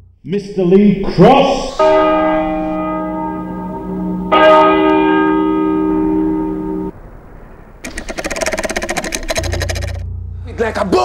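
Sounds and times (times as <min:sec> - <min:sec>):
bell struck hard ringing: 0:01.6 - 0:06.9.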